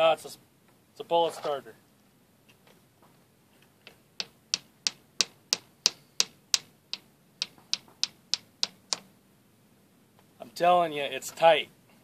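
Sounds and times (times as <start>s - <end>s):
hammer striking bullet starter: 3.9s - 9.1s.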